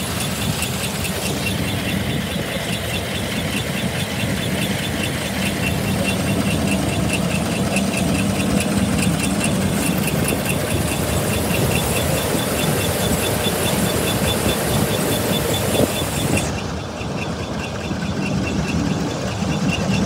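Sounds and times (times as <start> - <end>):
combine harvester engine drone: 0.0 - 20.0
light regular ticking: 0.0 - 20.0.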